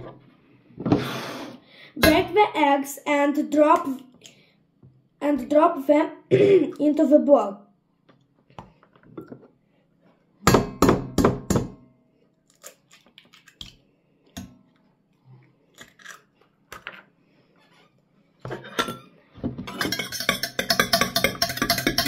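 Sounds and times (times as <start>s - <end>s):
eggs cracked on steel pot: 19.7s - 22.0s.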